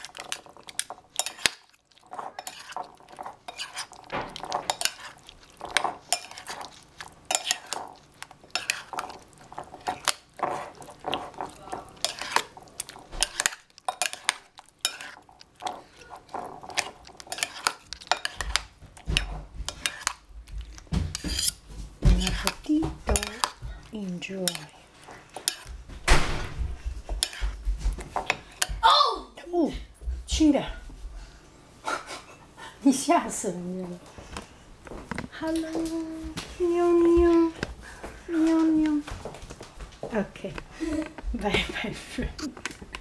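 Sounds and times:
metal spoons clinking in bowl: 0:00.0 - 0:07.9, 0:22.2 - 0:23.6.

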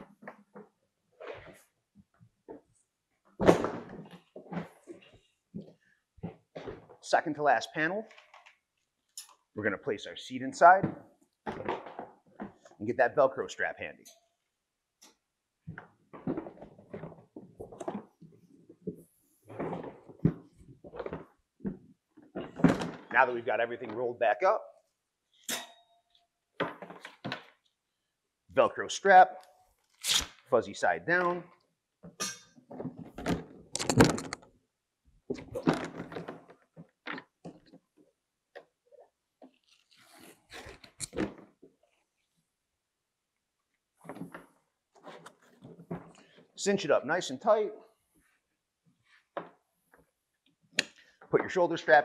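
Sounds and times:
plastic kayak being handled: 0:10.8 - 0:12.8, 0:15.6 - 0:23.2, 0:26.5 - 0:27.8, 0:32.0 - 0:34.5, 0:35.3 - 0:42.3, 0:44.0 - 0:46.6.

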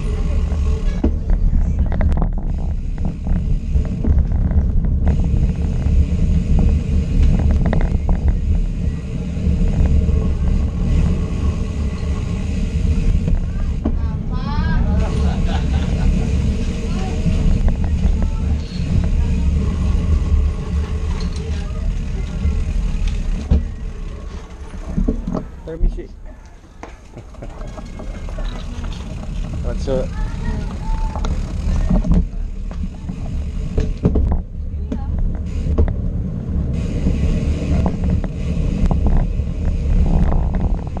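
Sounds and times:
bicycle clicks and rattles: 0:00.0 - 0:14.0, 0:15.0 - 0:41.0
wind and road noise: 0:00.0 - 0:41.0
hiss: 0:36.7 - 0:41.0.

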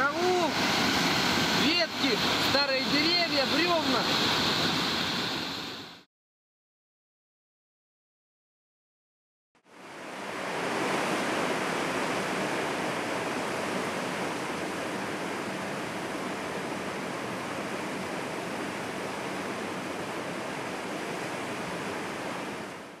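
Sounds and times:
creek rushing over boulders: 0:00.0 - 0:05.6.

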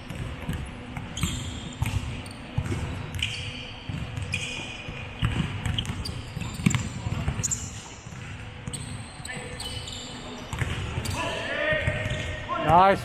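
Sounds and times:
basketball bouncing on a court: 0:00.1 - 0:09.0, 0:10.5 - 0:12.8.

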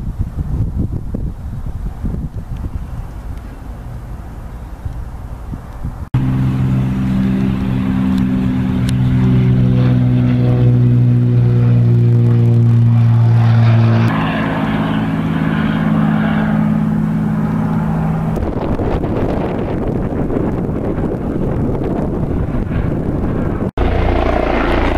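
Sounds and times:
propeller plane engine drone: 0:00.0 - 0:24.9
wind noise: 0:00.0 - 0:24.9.

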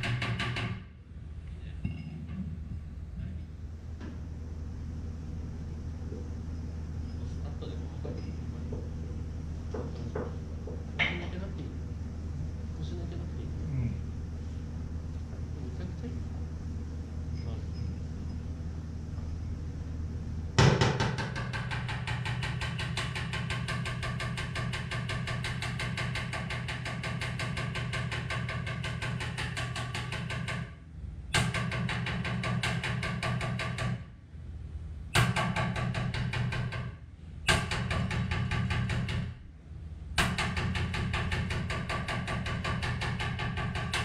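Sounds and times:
power tool hammering sheet metal: 0:00.0 - 0:00.9, 0:20.6 - 0:34.1, 0:35.2 - 0:39.4, 0:40.2 - 0:44.0.

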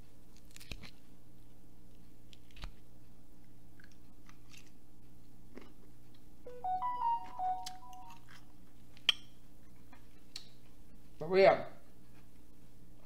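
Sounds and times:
chewing with soft crunches: 0:03.4 - 0:06.3, 0:08.7 - 0:11.2, 0:11.8 - 0:13.0.

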